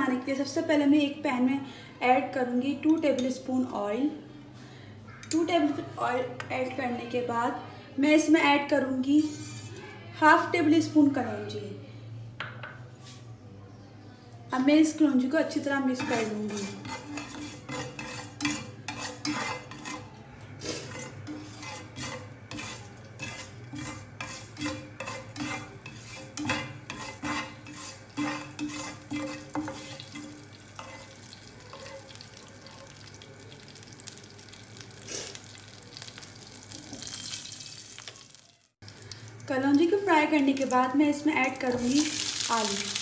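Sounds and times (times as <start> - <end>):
spatula scraping frying pan: 9.2 - 9.8, 15.9 - 33.0
seeds sizzling in oil: 20.9 - 39.6, 41.7 - 43.0.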